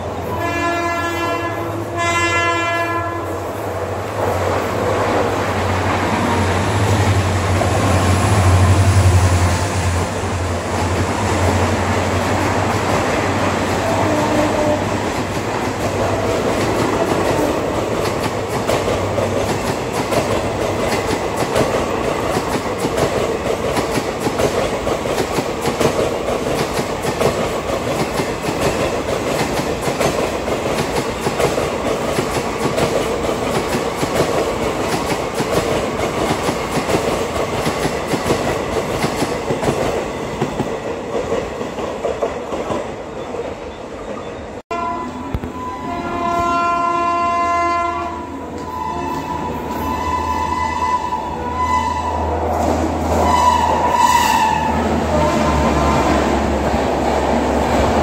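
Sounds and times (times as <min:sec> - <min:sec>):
train passing with rumble: 0:00.0 - 0:58.0
shrill locomotive horn: 0:00.2 - 0:03.4, 0:13.8 - 0:15.0, 0:44.7 - 0:56.5.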